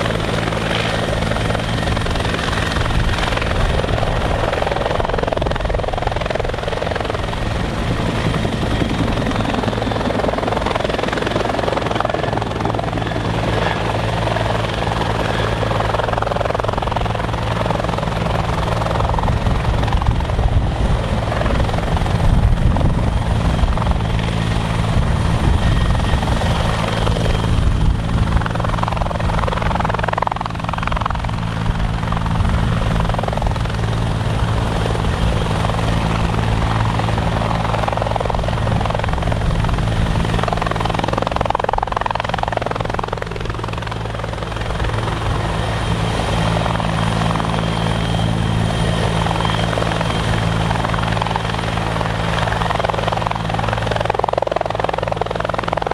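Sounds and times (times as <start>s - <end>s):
helicopter hovering: 0.0s - 55.9s.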